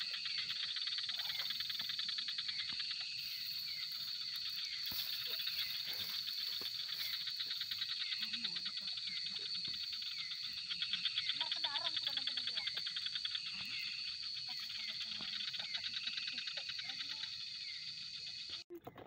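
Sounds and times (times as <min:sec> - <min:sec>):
insects trilling: 0:00.0 - 0:18.8.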